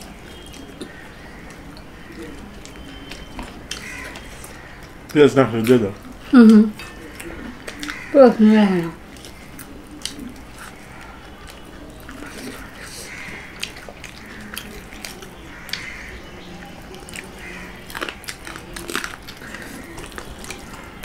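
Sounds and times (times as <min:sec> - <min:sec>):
chewing and mouth sounds: 0:00.0 - 0:08.1, 0:08.9 - 0:21.0.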